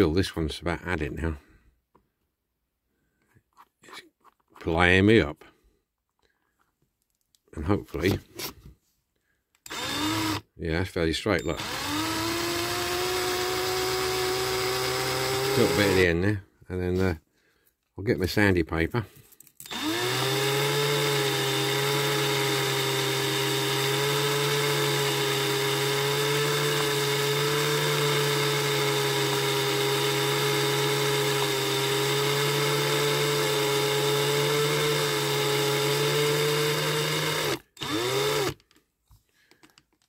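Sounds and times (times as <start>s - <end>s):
cordless drill running: 9.6s - 10.5s, 11.4s - 16.2s, 19.6s - 38.8s.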